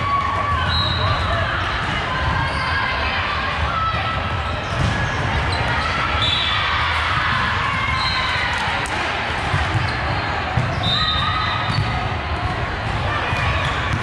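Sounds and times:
players' voices in echoing hall: 0.0 - 14.0
sneakers squeaking on gym floor: 9.7 - 12.0
ball bouncing: 11.6 - 12.6.

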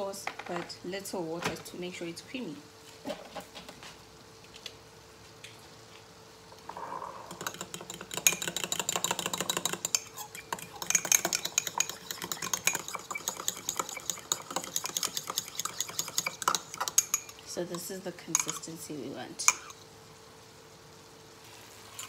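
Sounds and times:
metal spoon clinking in ceramic mug: 7.4 - 17.4, 18.3 - 18.6.

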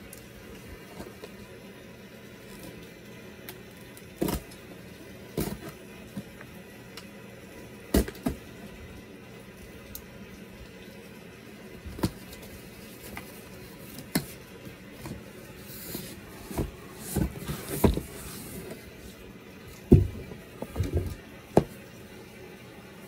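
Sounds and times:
cardboard rustling: 12.0 - 19.2
boxes thumping on carpet: 19.9 - 21.2.

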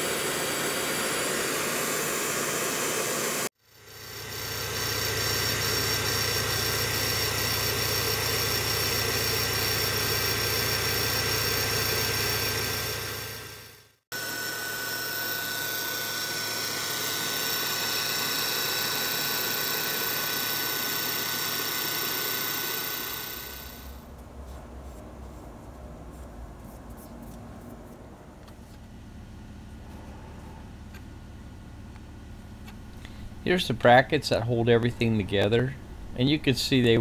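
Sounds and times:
grinder machine whine: 0.0 - 24.2
low machine hum: 0.0 - 37.0.

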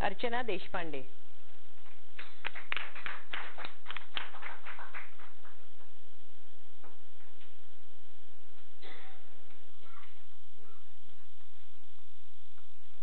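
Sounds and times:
small audience applauding: 2.2 - 5.9.

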